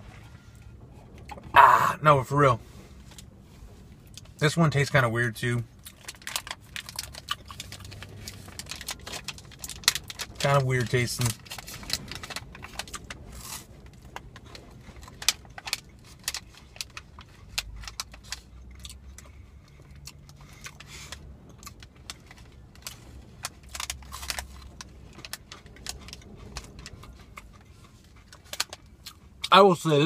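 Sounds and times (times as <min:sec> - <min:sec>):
plastic wrapper crinkling: 0:05.8 - 0:18.8, 0:21.6 - 0:28.9
chewing: 0:23.7 - 0:29.5.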